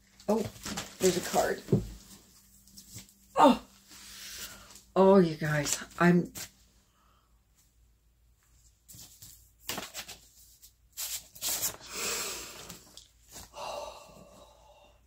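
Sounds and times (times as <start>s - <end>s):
paper rustling: 0.1s - 3.2s, 8.6s - 11.8s.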